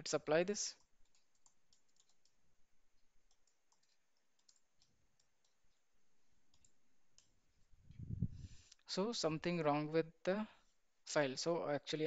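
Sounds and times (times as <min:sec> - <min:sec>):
faint keyboard typing: 0:00.7 - 0:07.4.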